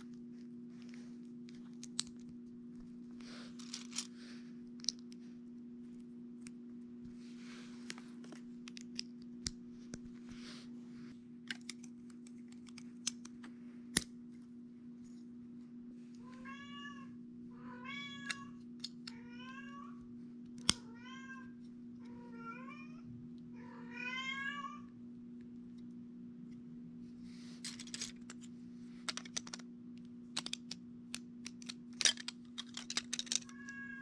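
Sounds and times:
steady low hum: 0.0 - 34.0
plastic bricks clicking: 3.6 - 4.1, 11.5 - 13.4, 29.0 - 33.8.

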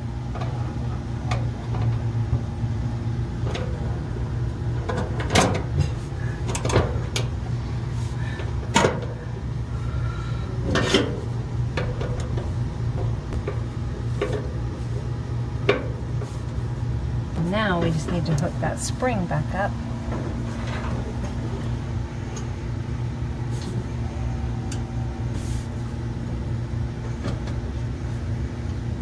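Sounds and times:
steady low hum: 0.0 - 29.0
sharp clicks and knocks of parts: 4.9 - 7.3.

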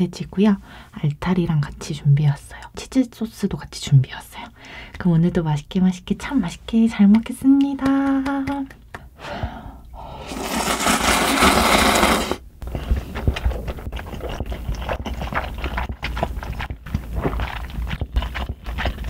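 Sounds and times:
loud slurp of broth: 10.2 - 12.4
wet mouth clicks and smacks: 12.6 - 19.0.

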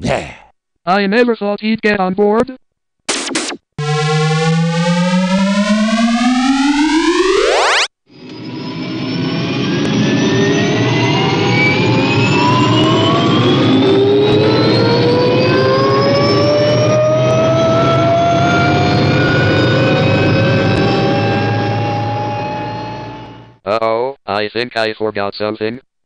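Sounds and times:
jet engine rush with rising whine: 3.8 - 23.6.

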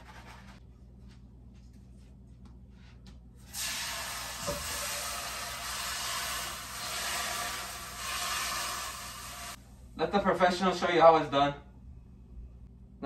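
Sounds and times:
hot pan hissing under water: 3.5 - 9.6.

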